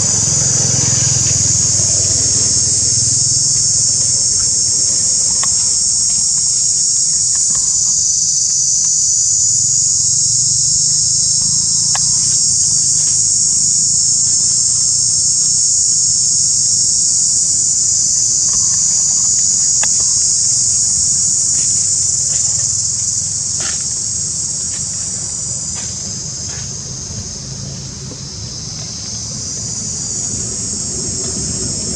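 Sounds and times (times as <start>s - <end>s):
insects chorus: 0.0s - 31.9s
faint ticks: 1.2s - 9.0s, 18.2s - 24.1s.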